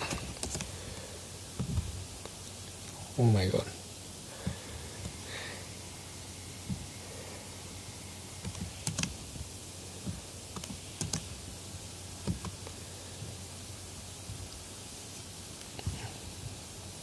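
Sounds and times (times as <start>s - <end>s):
keyboard and mouse clicks: 0.0s - 0.7s, 8.4s - 9.2s, 10.0s - 11.3s, 12.2s - 12.7s
low steady hum: 0.0s - 17.0s.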